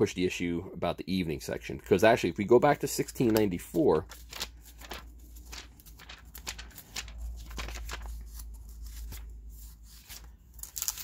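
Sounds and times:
pages flicking and rustling: 3.1s - 11.0s.

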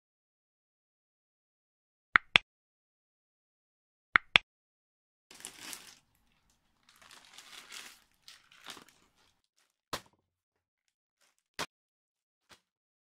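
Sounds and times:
crinkling rustling handling noise: 5.3s - 9.8s.

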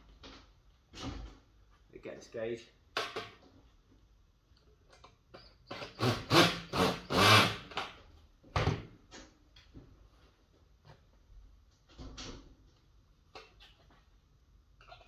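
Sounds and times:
drill driving screws into metal: 5.7s - 7.9s.

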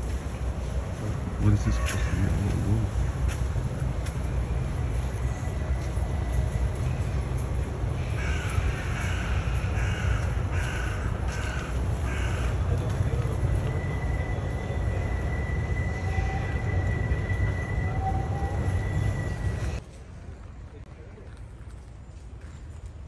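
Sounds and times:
crow cawing: 8.1s - 12.6s.

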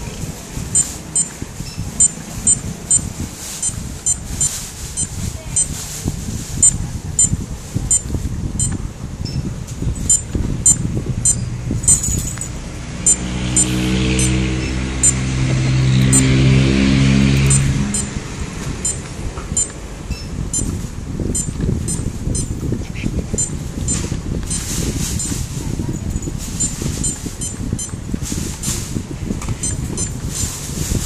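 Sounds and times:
vehicle engine passing: 0.0s - 8.0s, 10.0s - 22.6s
calculator key beeps: 0.7s - 1.4s, 2.0s - 5.8s, 6.6s - 9.4s, 10.0s - 12.1s, 13.1s - 14.4s, 15.0s - 15.2s, 16.0s - 16.3s, 17.4s - 18.1s, 18.8s - 19.8s, 20.5s - 22.5s, 23.4s - 25.4s, 26.6s - 28.0s, 29.6s - 30.2s.

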